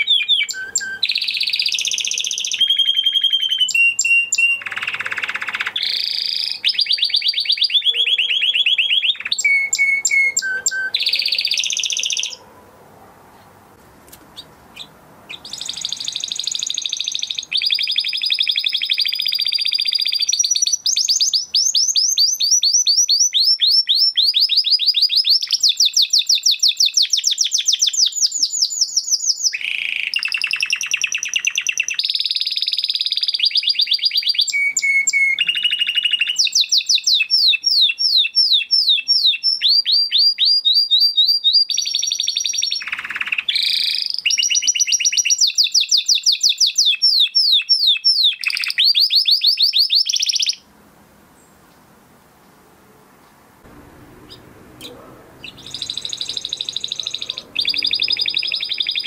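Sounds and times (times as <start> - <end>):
canary singing trills: 0.0 - 12.5, 14.3 - 50.6, 53.7 - 59.0.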